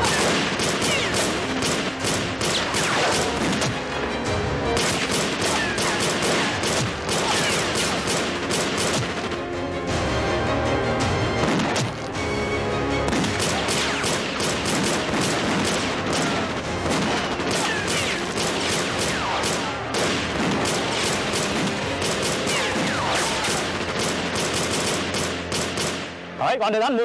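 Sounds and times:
single gunshots: 0.0 - 3.8, 4.8 - 9.2, 13.1 - 26.2.

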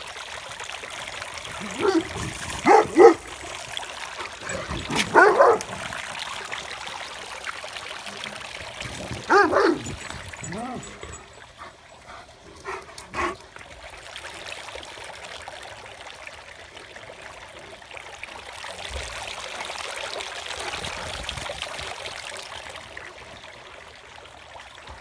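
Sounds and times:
water trickling: 0.0 - 25.0
dog barking: 1.6 - 3.3, 4.9 - 5.7, 9.3 - 9.9.

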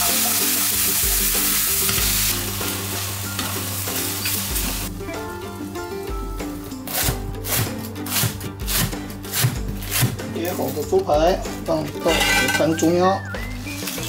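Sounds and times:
vegetables sizzling in a frying pan: 0.0 - 4.9.

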